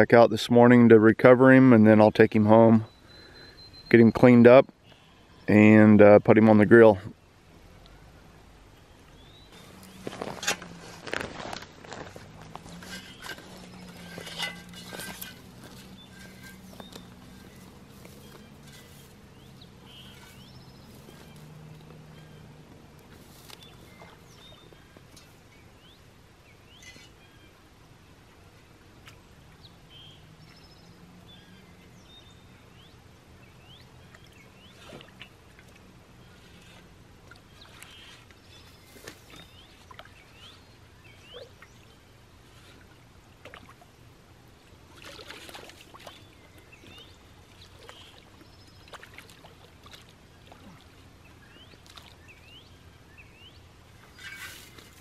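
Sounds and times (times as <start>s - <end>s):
shovel sloshing in water: 9.6s - 21.8s, 34.2s - 40.2s, 44.9s - 51.0s, 51.7s - 52.3s, 54.0s - 55.0s.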